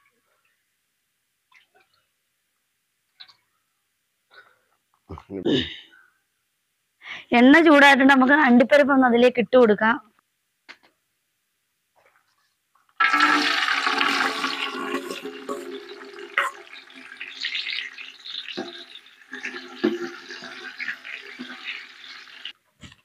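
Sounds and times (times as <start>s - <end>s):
nuts sizzling in hot oil: 13.0s - 22.6s.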